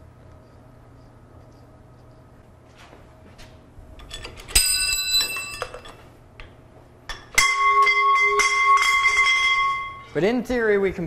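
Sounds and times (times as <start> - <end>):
steel clanks with ringing: 4.0 - 6.0, 7.1 - 10.2.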